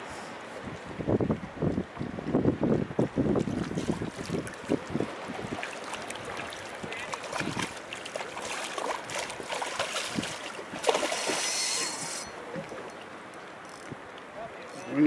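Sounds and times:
shark splashing in water: 0:03.4 - 0:12.1.

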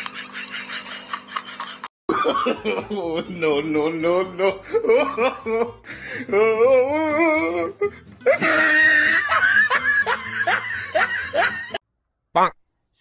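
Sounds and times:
bursts of laughter: 0:08.2 - 0:11.8.

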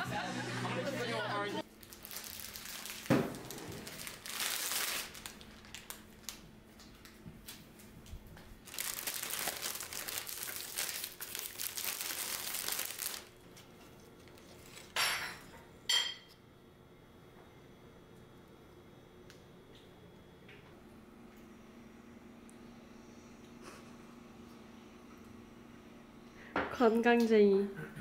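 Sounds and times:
cellophane crinkling and rustling: 0:01.7 - 0:07.9, 0:08.6 - 0:14.9.

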